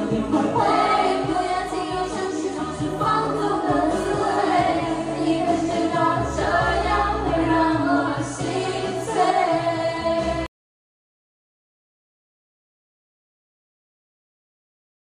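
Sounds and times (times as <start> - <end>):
pop song with singer: 0.0 - 10.5.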